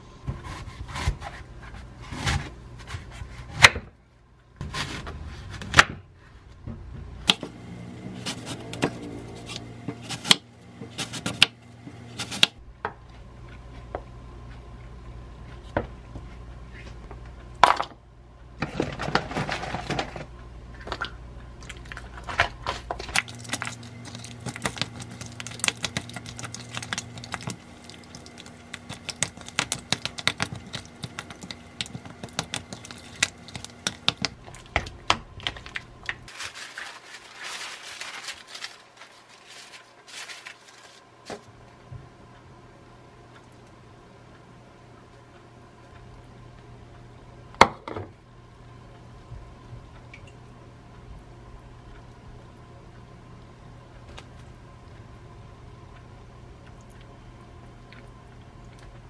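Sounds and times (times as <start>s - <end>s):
knife cutting apple on board: 7.2s - 12.6s
utensil stirring in bowl: 23.1s - 34.7s.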